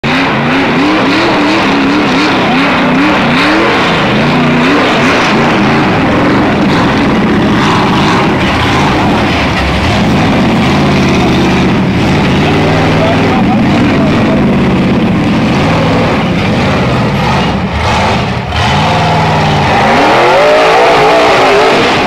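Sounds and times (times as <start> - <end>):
buggy engine revving hard: 0.0 - 22.0.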